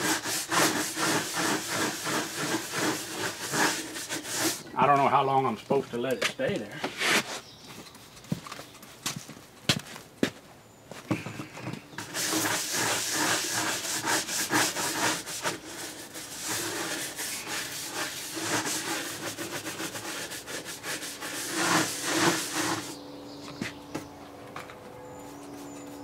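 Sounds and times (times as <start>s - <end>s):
brush scrubbing: 0.0s - 5.2s, 12.0s - 23.0s.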